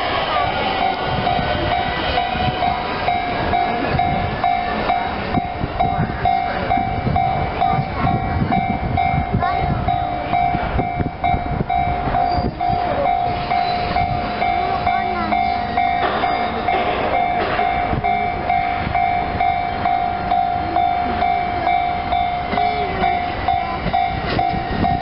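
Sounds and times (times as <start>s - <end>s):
level crossing bell ringing: 0.0s - 25.0s
train rumble and wheel clatter: 0.0s - 25.0s.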